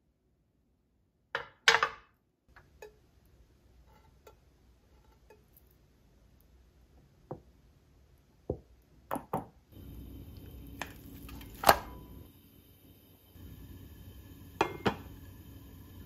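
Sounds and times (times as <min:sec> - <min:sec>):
steady hiss: 0:09.7 - 0:16.0
kitchen utensils knocking: 0:14.6 - 0:15.1.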